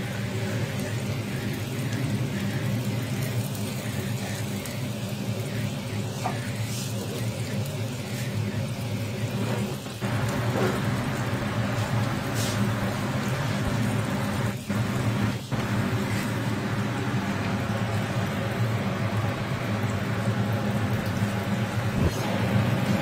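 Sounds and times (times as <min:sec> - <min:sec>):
burger patties sizzling on griddle: 0:00.0 - 0:23.0
steady low hum: 0:09.9 - 0:23.0.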